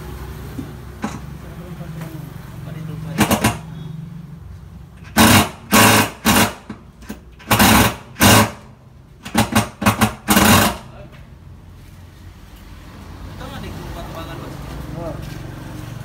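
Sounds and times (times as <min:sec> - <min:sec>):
power tool bursts: 0:05.0 - 0:06.8, 0:07.4 - 0:10.9.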